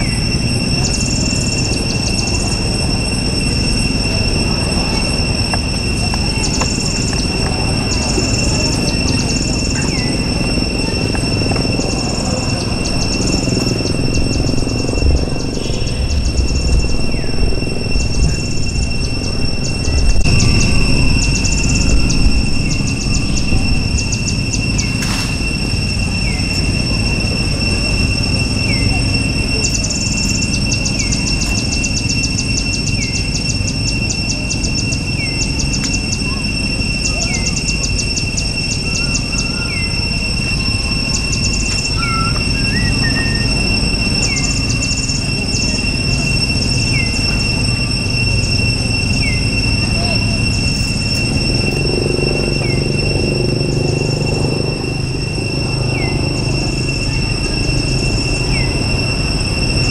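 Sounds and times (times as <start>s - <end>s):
low rumble: 0.0s - 31.4s
high-pitched insect drone: 0.0s - 59.9s
rapid high ticking trills: 0.0s - 59.9s.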